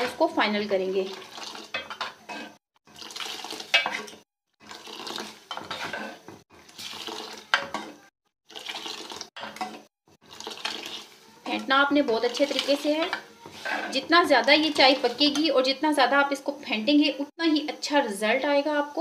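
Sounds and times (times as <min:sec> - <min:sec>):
metal utensil clinking and scraping pot: 0:01.0 - 0:02.6, 0:03.3 - 0:15.8.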